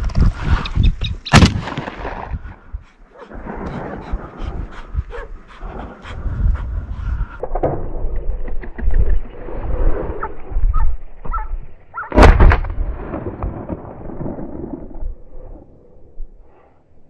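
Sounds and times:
wind buffeting microphone: 0.0s - 11.8s
shotgun shot with echo: 1.3s - 2.1s.

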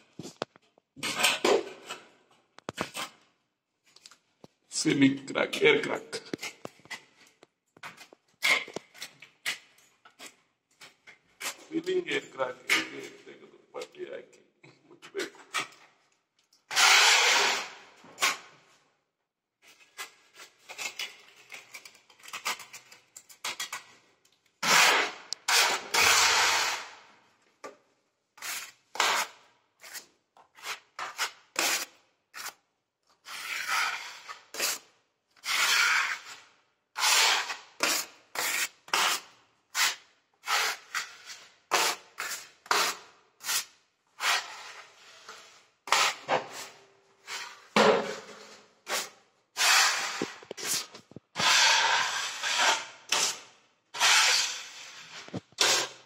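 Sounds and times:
sandpaper rubbing on a wall: 35.4s - 36.4s, 48.9s - 53.4s, 54.0s - 56.0s.

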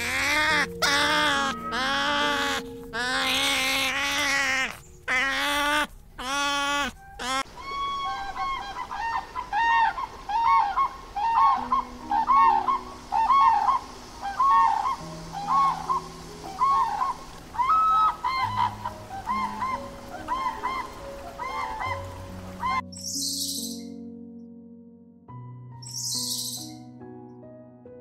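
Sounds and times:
crane high wavering cries: 0.0s - 4.7s
crane honking calls: 0.0s - 7.5s.

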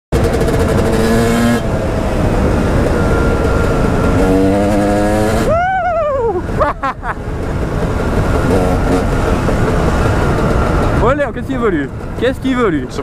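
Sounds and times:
dirt bike engine revving: 0.1s - 5.6s, 7.4s - 12.3s
wind noise: 0.2s - 13.0s.

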